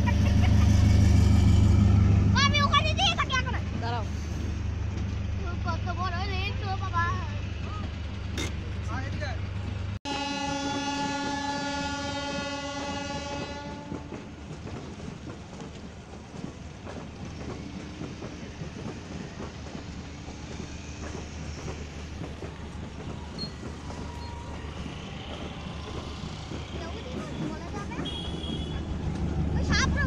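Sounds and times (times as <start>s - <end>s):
train coaches rumbling: 0.0s - 30.0s
train horn blast: 10.1s - 14.2s, 27.9s - 29.0s
wheels clicking over rails: 13.4s - 30.0s.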